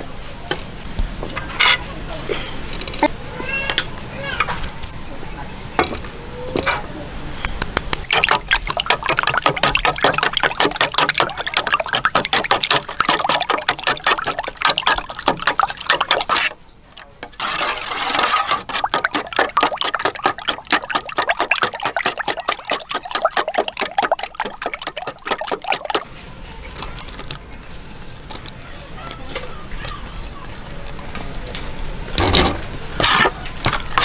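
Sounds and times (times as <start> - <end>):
utensil beating eggs in metal bowl: 8.0 - 26.1.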